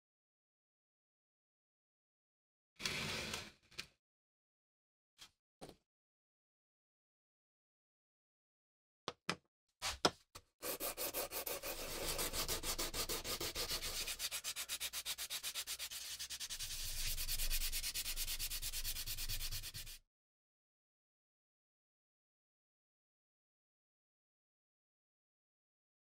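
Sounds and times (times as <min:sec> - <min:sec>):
sandpaper rubbing on wood: 0:10.6 - 0:20.0.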